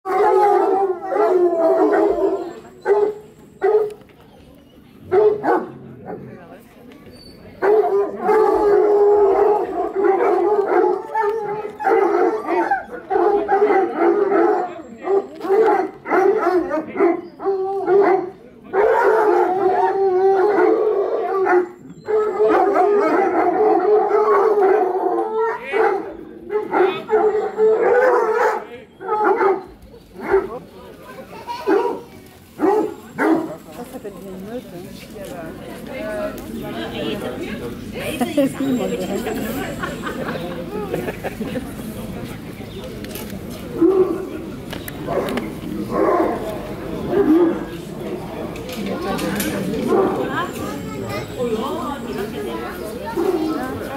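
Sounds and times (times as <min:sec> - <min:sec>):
hounds baying and howling: 0:00.1 - 0:04.0, 0:07.6 - 0:30.6.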